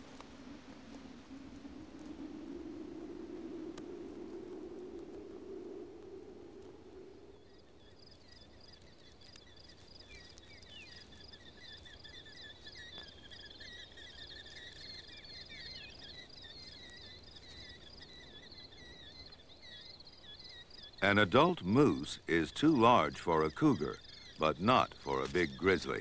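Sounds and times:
high-pitched chirping chorus: 7.3 - 26.0.

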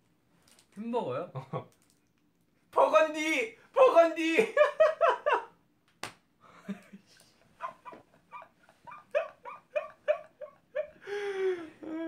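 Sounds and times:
man laughing hard: 6.6 - 12.0.

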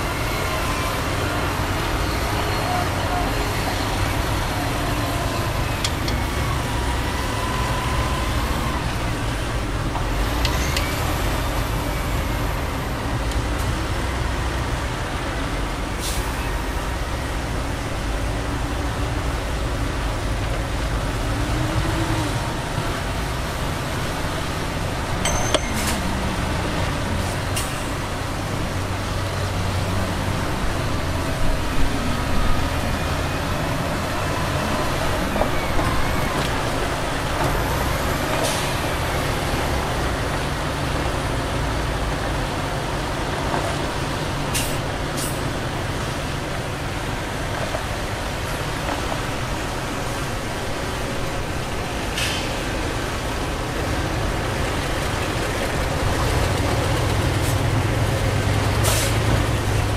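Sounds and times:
heavy diesel engines rumbling: 0.0 - 59.9
sharp clanks or hisses: 44.5 - 45.4, 52.2 - 52.6, 58.8 - 59.2.

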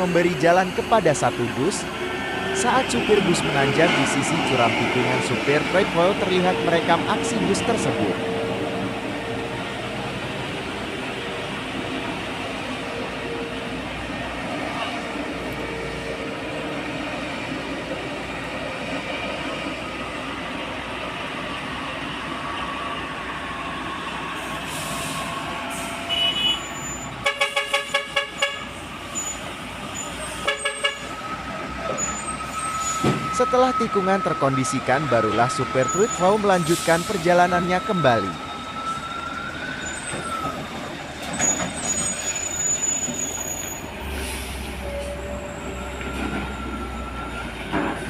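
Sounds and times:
bus climbing uphill: 0.0 - 48.0
heavy vehicle engines: 0.0 - 48.0
traffic: 0.0 - 48.0
vehicle horn short blasts: 26.1 - 28.6.

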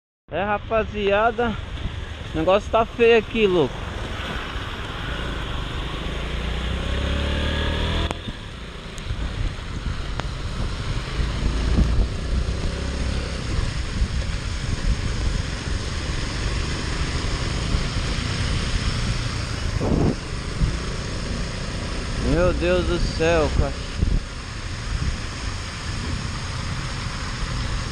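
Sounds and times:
wind noise on microphone: 1.4 - 2.8, 3.4 - 27.9
motorcycle engine accelerating: 3.6 - 27.9
tyres hissing on wet road: 9.2 - 27.9.

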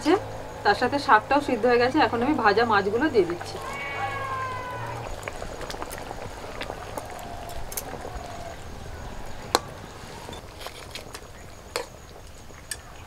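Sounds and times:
broth simmering: 0.0 - 13.0.

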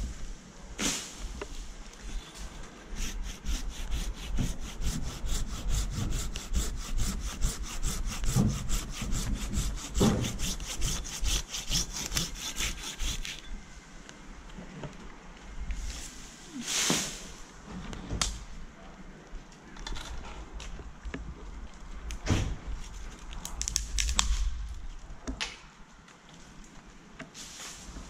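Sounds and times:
hand saw cutting branch: 2.7 - 13.5.

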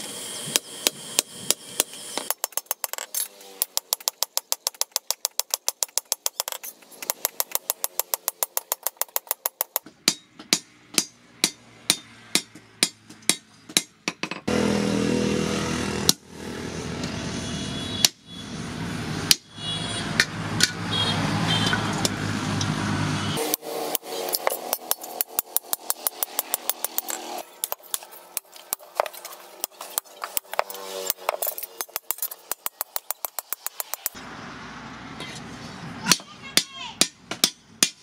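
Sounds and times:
hammer striking steel on anvil: 5.8 - 14.5, 36.1 - 38.0
motor drone: 14.5 - 18.8.

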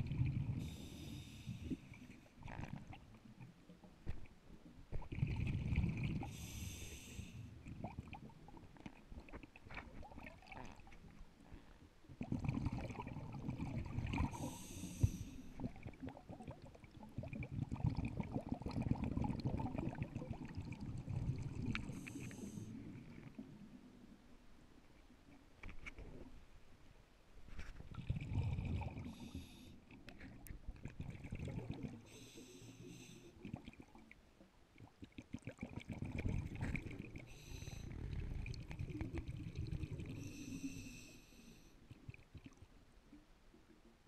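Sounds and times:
diver breathing through regulator: 0.6 - 1.9, 6.3 - 7.5, 14.2 - 15.5, 21.8 - 22.7, 32.0 - 33.4, 37.3 - 38.4, 40.2 - 41.8.

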